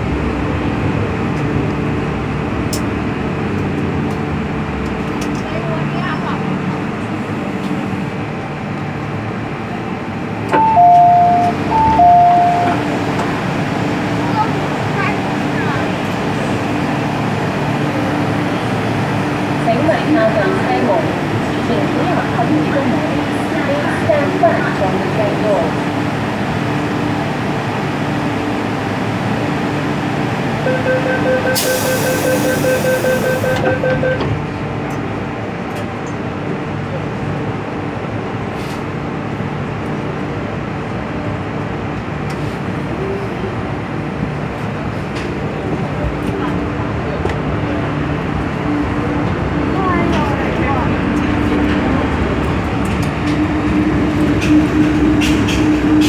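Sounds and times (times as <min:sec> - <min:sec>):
train humming: 0:00.0 - 0:56.0
rapid two-pitch warning beeps: 0:30.7 - 0:34.2
train doors sliding shut: 0:52.8 - 0:56.0.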